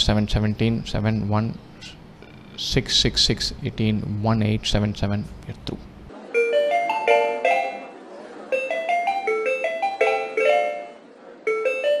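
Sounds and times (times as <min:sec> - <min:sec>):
music jingle: 0:06.2 - 0:12.0.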